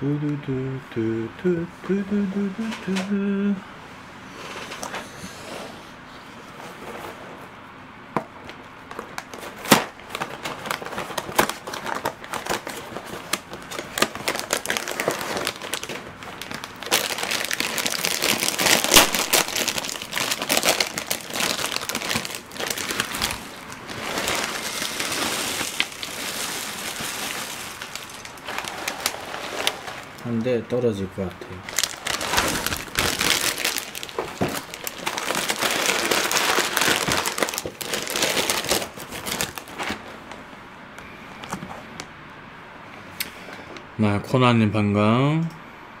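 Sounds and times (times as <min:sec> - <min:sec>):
foil bag crinkling: 0:08.9 - 0:30.5, 0:31.6 - 0:40.2
cereal pouring into glass bowl: 0:24.0 - 0:30.0.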